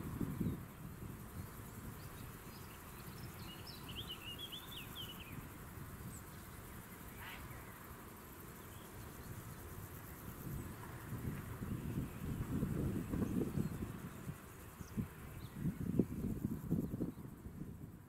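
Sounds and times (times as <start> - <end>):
wind rumble: 0.0 - 4.1, 10.3 - 18.0
distant jet engines: 0.0 - 18.0
bird chirping: 1.4 - 5.4.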